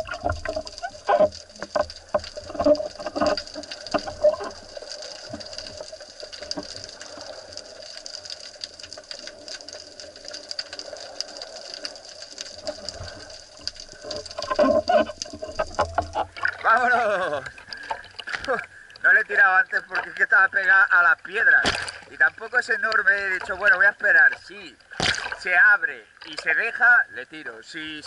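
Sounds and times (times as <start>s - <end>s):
water sloshing and splashing: 0.0s - 26.8s
sharp clicks and knocks: 13.6s - 16.5s.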